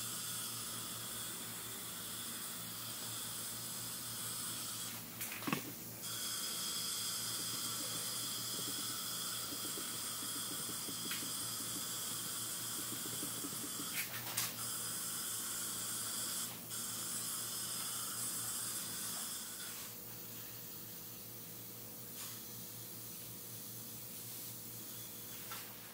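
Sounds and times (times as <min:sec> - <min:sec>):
powder coating gun hissing: 0:04.5 - 0:14.2.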